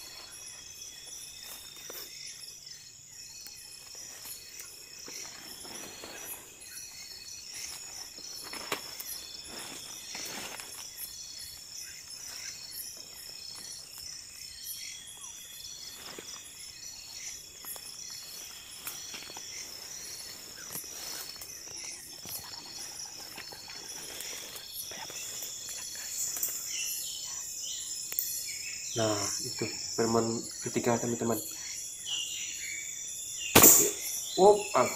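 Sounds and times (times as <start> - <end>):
rustling undergrowth: 0.0 - 2.8, 3.4 - 26.8
crickets trilling: 0.0 - 34.9.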